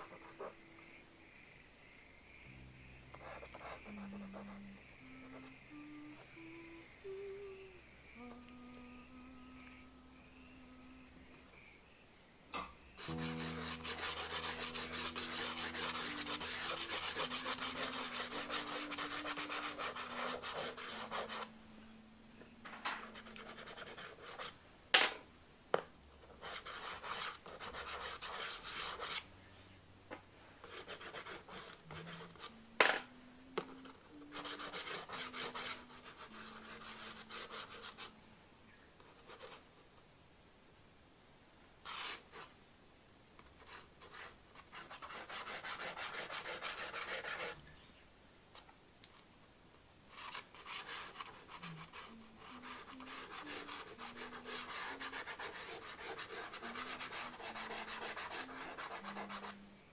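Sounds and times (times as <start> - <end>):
pastel scratching on paper: 13.0 - 21.5, 23.0 - 24.5, 26.4 - 29.2, 30.6 - 32.6, 33.6 - 38.1, 41.8 - 42.5, 43.6 - 47.6, 50.1 - 59.6.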